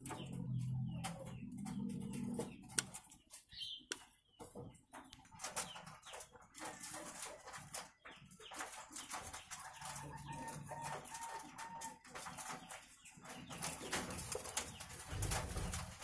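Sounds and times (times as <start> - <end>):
doves cooing: 0.0 - 2.8, 9.0 - 12.4, 13.4 - 16.0
clicks: 2.7 - 3.1.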